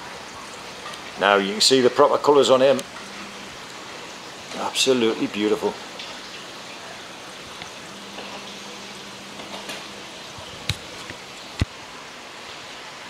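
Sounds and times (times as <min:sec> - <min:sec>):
aquarium water hiss: 0:00.0 - 0:13.0.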